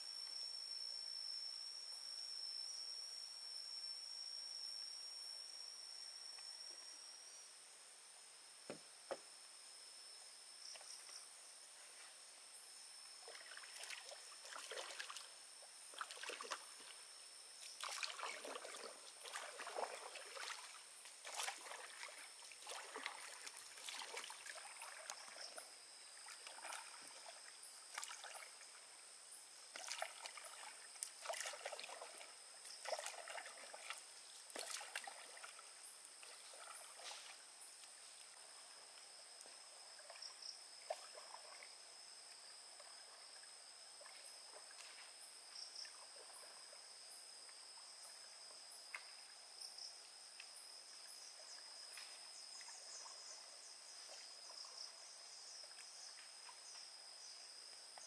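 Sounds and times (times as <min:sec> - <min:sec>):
high-pitched insect drone: 0:00.0 - 0:58.0
water splashing and dripping: 0:13.2 - 0:15.3, 0:15.9 - 0:16.9, 0:17.6 - 0:25.6, 0:26.2 - 0:28.6, 0:29.7 - 0:38.0.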